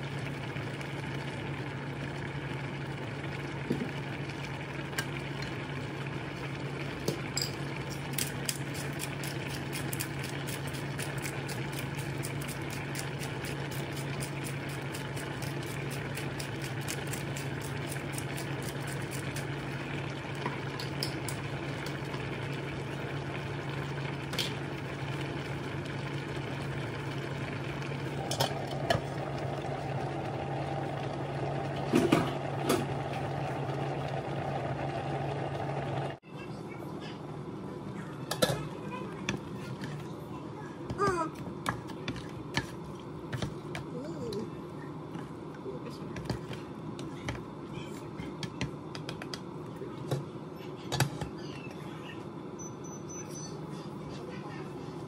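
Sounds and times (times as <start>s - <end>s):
steady low hum: 0.0s - 52.6s
food crackling and popping in pan: 0.1s - 34.7s.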